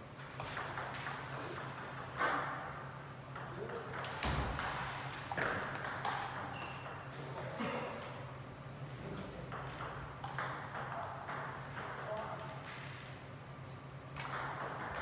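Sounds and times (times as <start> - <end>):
table tennis ball clicking: 9.5 - 12.0.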